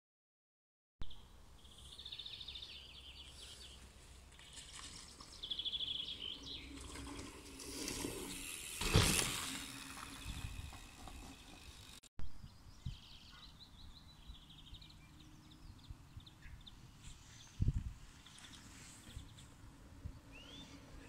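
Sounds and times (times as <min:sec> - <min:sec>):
songbird trilling: 0:20.3 - 0:20.8.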